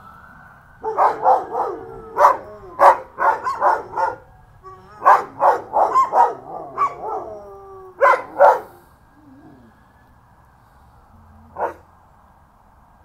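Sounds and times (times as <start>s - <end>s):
dog barking: 0.8s - 4.2s, 5.0s - 7.3s, 8.0s - 8.8s, 11.5s - 11.8s
dog howling: 0.8s - 9.8s.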